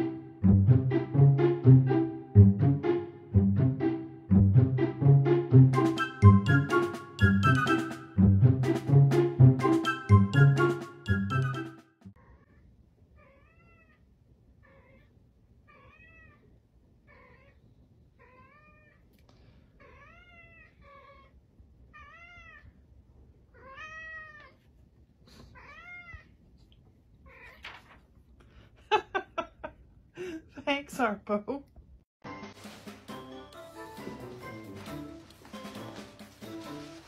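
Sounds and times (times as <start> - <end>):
cat meowing: 15.7 - 16.5, 23.5 - 24.6, 25.6 - 26.3, 27.3 - 27.6.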